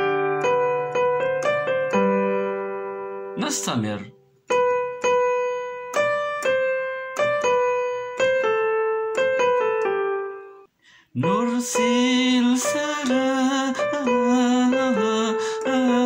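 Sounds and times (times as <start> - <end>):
electronic keyboard piano melody: 0.0 - 16.0
man singing: 11.1 - 16.0.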